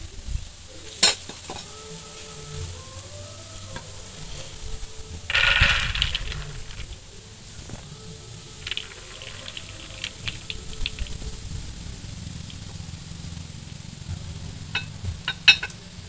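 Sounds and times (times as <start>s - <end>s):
dried chickpeas rattling onto plate: 5.3s - 11.7s.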